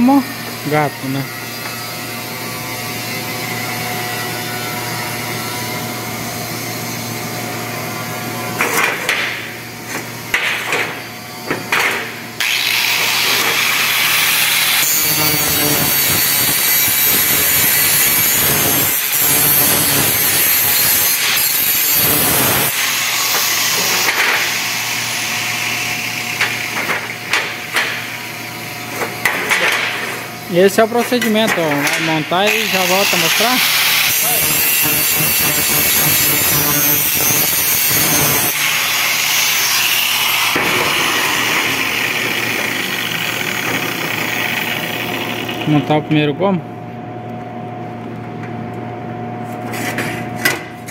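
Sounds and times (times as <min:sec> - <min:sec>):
angle grinder grinding steel: 0:10.9 - 0:29.3, 0:30.2 - 0:46.0.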